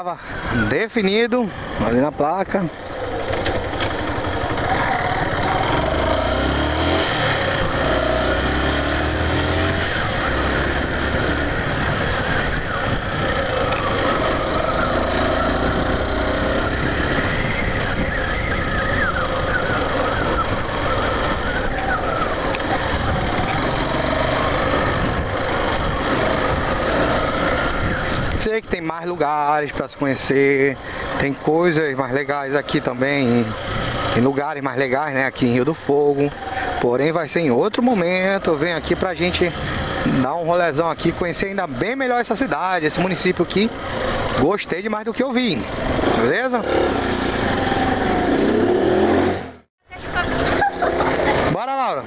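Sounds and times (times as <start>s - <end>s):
wind and road noise: 0.0s - 52.0s
motorcycle engine running: 1.5s - 28.3s, 45.3s - 52.0s.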